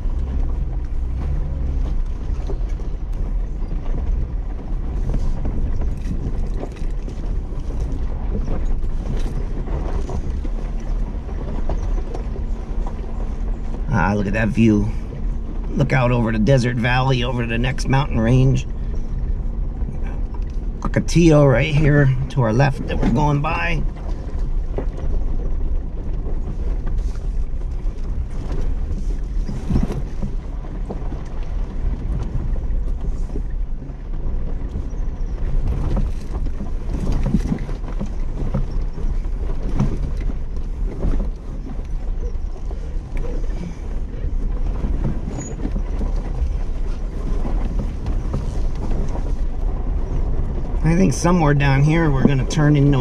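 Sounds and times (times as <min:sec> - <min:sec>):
engine and tyre rumble: 0:00.0 - 0:53.0.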